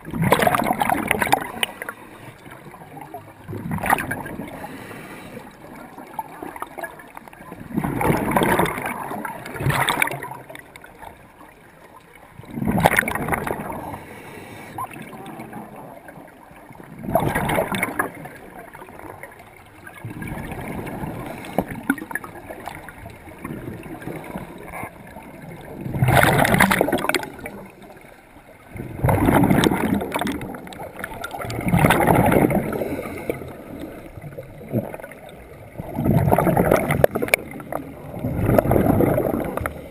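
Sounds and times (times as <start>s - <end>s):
exhaled breath bubbling underwater: 28.8s - 35.2s, 35.8s - 39.9s.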